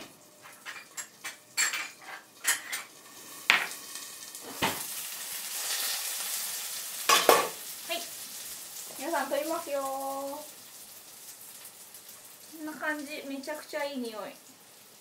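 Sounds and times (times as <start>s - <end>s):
batter sizzling in frying pan: 0.0s - 15.0s
bowls and utensils clinking: 0.4s - 2.9s
pan and utensil clatter: 0.4s - 4.9s, 7.1s - 7.6s.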